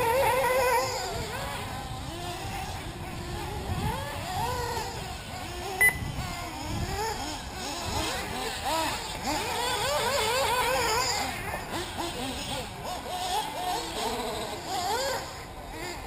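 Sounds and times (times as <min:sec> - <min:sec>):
rc car engines revving: 0:00.0 - 0:16.0
short sharp beep: 0:05.8 - 0:06.1.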